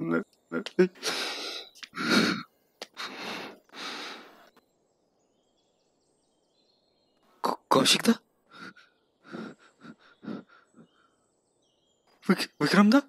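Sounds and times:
man sighing heavily: 0:01.0 - 0:04.3.

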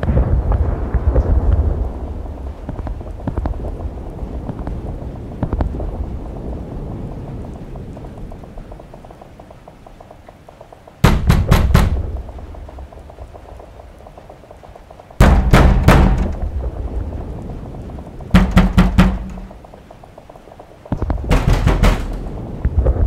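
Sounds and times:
heavy pounding thuds: 0:10.5 - 0:14.3, 0:15.1 - 0:16.8, 0:17.6 - 0:23.0.

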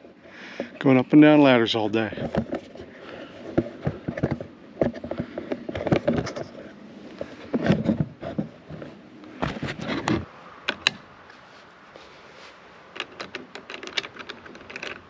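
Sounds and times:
metal hardware knocking and clinking: 0:13.0 - 0:15.0.

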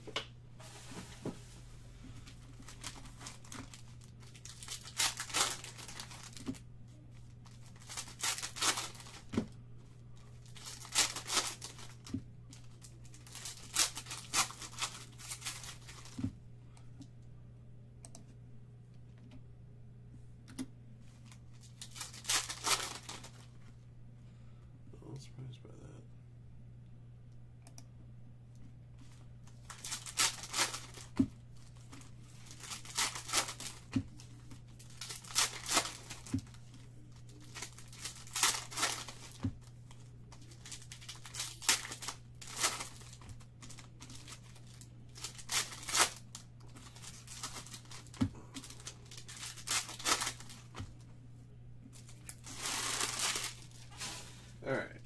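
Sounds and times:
foil wrappers tearing and crinkling: 0:02.2 - 0:06.6, 0:07.2 - 0:09.4, 0:10.4 - 0:16.2, 0:21.2 - 0:23.5, 0:29.5 - 0:51.0, 0:51.9 - 0:54.5.

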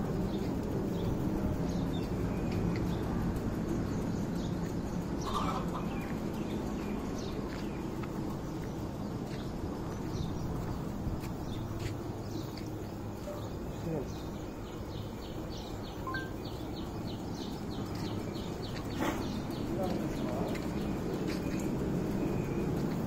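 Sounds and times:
outdoor background noise: 0:00.0 - 0:23.0
small birds calling: 0:00.0 - 0:23.0
chickens calling: 0:05.0 - 0:08.4.

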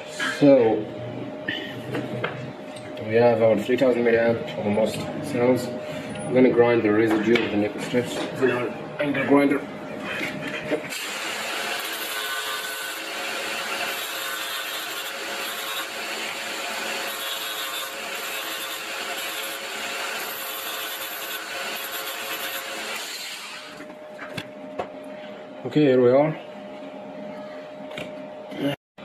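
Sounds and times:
angle grinder grinding metal: 0:10.9 - 0:23.8.

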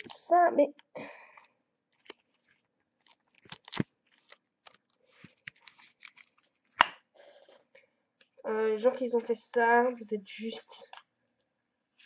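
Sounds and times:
packaging crackling and clicking: 0:01.9 - 0:07.0.

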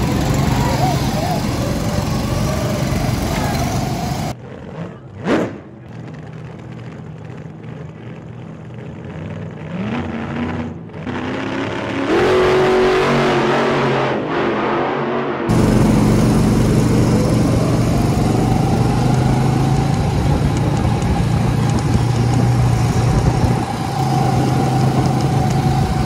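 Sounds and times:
go-kart engines idling: 0:00.0 - 0:09.6, 0:15.5 - 0:26.0
go-kart engines passing: 0:00.0 - 0:13.4, 0:15.5 - 0:26.0.

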